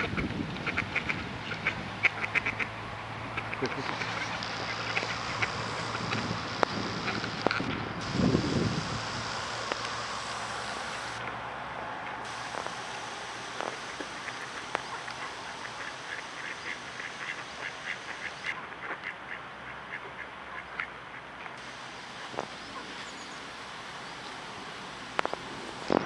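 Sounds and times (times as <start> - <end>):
ducks quacking: 0.0 - 7.6, 13.6 - 21.3.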